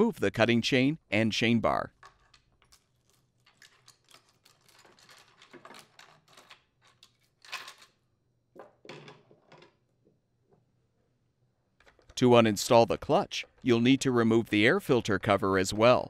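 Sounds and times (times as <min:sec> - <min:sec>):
chain links rattling and clinking: 0:02.0 - 0:07.9.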